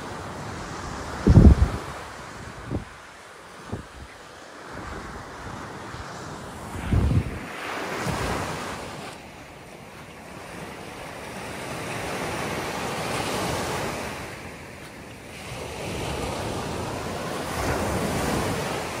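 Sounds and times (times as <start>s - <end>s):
wind buffeting microphone: 0.0s - 9.2s
ocean surf washing onto beach: 0.0s - 19.0s.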